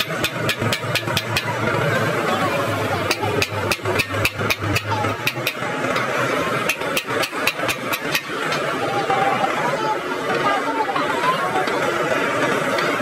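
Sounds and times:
steady engine hum: 0:00.0 - 0:13.0.

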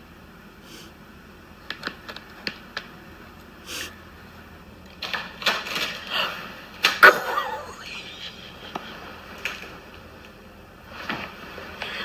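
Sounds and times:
pet door flap rattling: 0:04.9 - 0:06.1.

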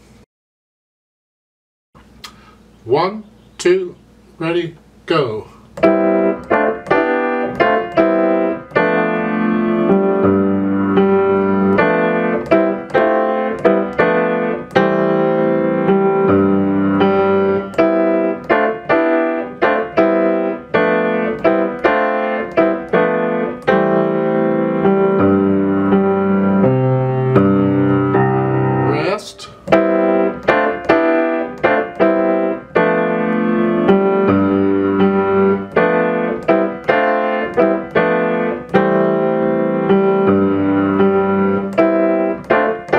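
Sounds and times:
metronome clicking: 0:05.8 - 0:10.1, 0:11.3 - 0:15.4, 0:17.3 - 0:24.2, 0:29.6 - 0:42.9
grand piano playing: 0:05.8 - 0:42.9.

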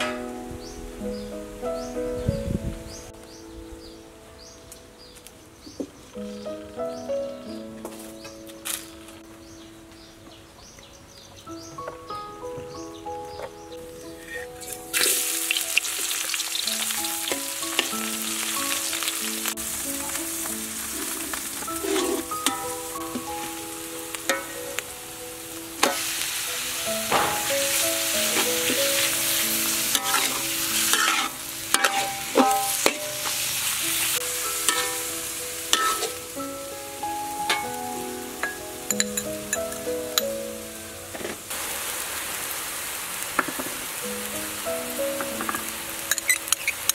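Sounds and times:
hot oil sizzling in a wok: 0:14.6 - 0:40.4, 0:41.1 - 0:46.9
metal spatula scraping a wok: 0:20.9 - 0:22.7, 0:29.9 - 0:33.8, 0:34.6 - 0:35.1, 0:35.7 - 0:36.2.

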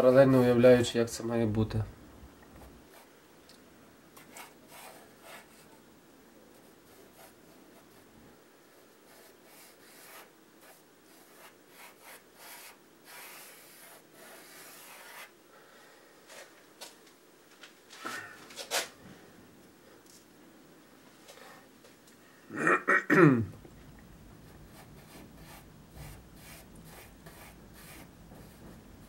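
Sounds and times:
pencil scratching on paper: 0:04.2 - 0:05.7, 0:09.1 - 0:15.3, 0:24.7 - 0:28.8.

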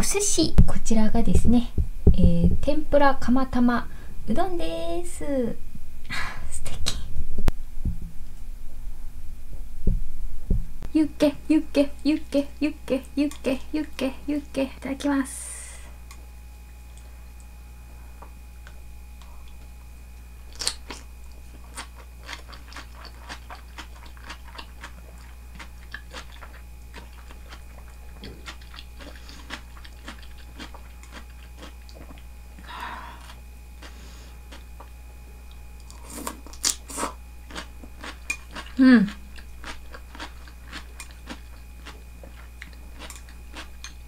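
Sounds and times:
low electrical hum: 0:00.0 - 0:44.0
crunchy chewing: 0:18.6 - 0:32.6, 0:33.2 - 0:44.0.

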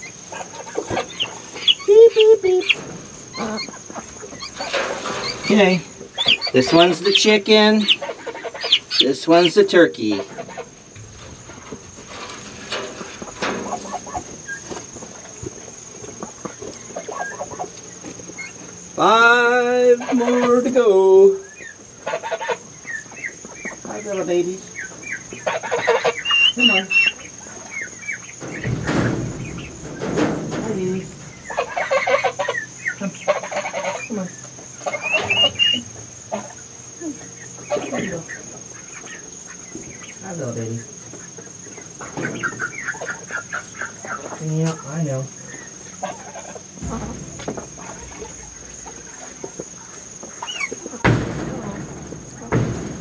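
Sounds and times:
scratching and rustling in straw: 0:00.0 - 0:18.9
young chickens clucking: 0:00.0 - 0:53.0.

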